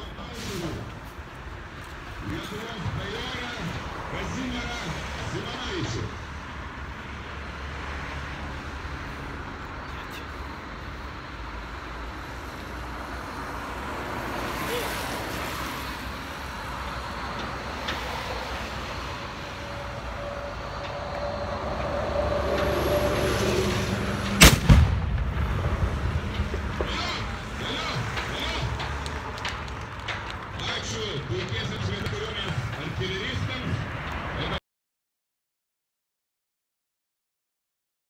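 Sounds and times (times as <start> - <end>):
outdoor background noise: 0.0 - 34.6
cannon shot with rumbling echo: 24.4 - 26.9.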